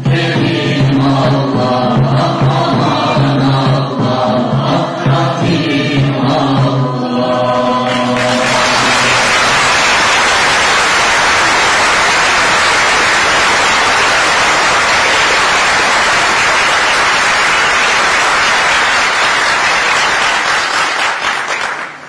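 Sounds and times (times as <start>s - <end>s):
audience applauding: 7.9s - 22.0s.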